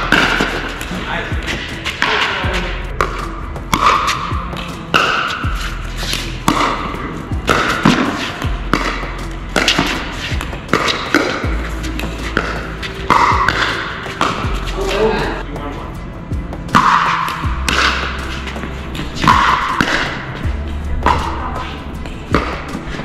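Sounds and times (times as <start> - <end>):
background music: 0.0 - 23.0.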